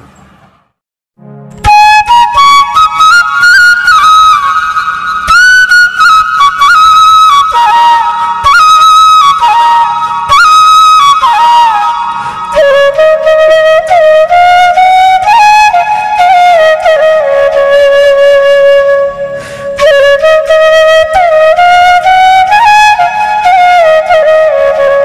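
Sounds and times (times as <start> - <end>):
solo flute melody: 1.5 - 25.0.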